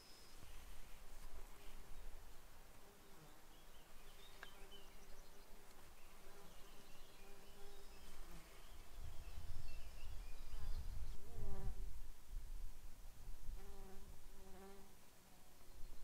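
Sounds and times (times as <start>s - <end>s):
wind rumble on microphone: 8.7s - 14.4s.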